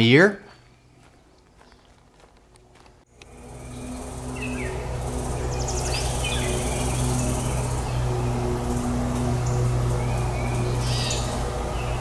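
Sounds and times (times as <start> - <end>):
low hum: 0.5 - 12.0
insect drone: 3.1 - 12.0
bird chirps and trill: 3.4 - 12.0.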